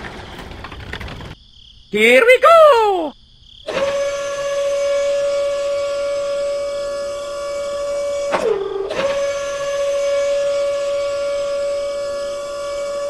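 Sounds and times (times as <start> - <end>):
gear motor whine: 3.7 - 13.0.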